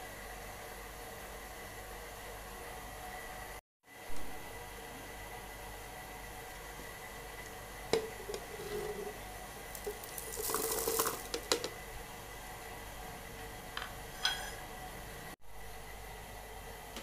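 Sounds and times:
seeds rattling into plastic jug: 9.8 - 11.3.

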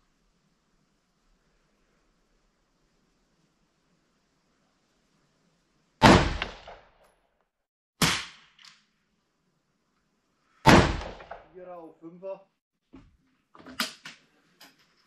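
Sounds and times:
rifle shots with echo: 6.0 - 6.8, 10.7 - 11.5.

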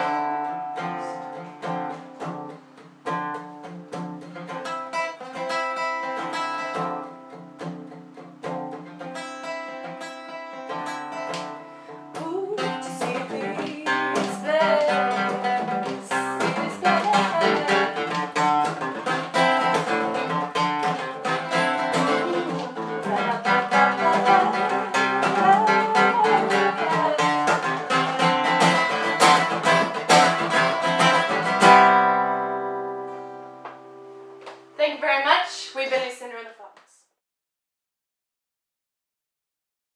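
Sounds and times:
acoustic guitar: 0.0 - 35.5
woman singing: 12.1 - 19.0, 21.4 - 28.7.

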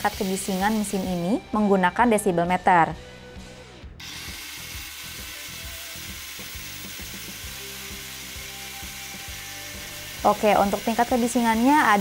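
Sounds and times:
angle grinder whine: 4.0 - 12.0.

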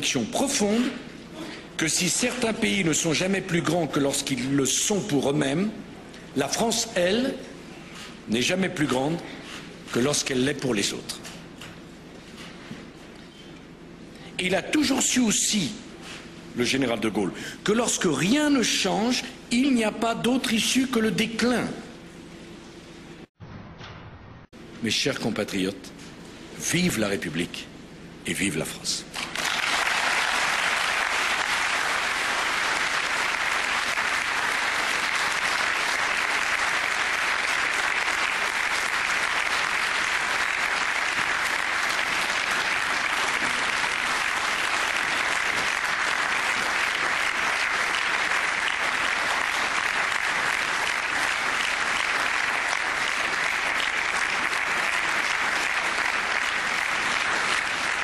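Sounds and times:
audience applauding: 29.2 - 58.0.

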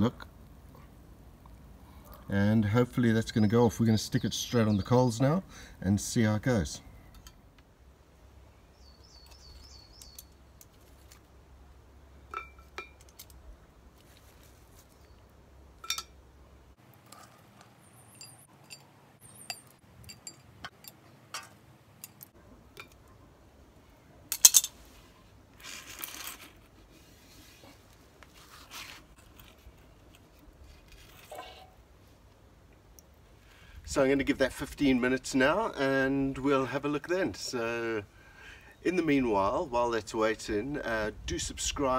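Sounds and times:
metal tongs clinking: 15.8 - 16.2, 18.1 - 23.0, 24.3 - 24.8
coals crunching as they settle: 16.8 - 23.0, 24.3 - 31.6
charcoal clattering onto iron lid: 24.3 - 24.7.

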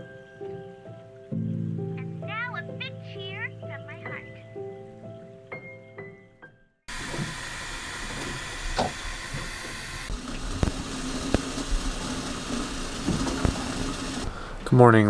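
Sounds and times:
music: 0.0 - 6.9
kettle steaming hiss: 6.9 - 14.5.

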